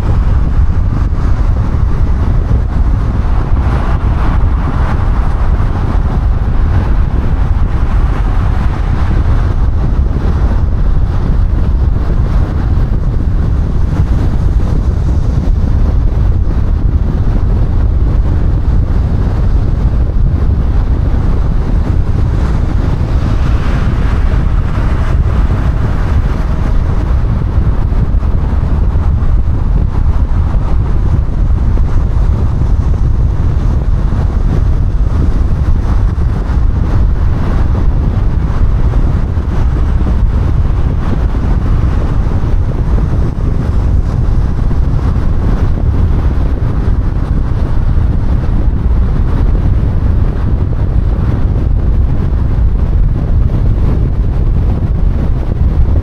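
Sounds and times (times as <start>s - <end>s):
road and wind noise rumble: 0.0s - 56.0s.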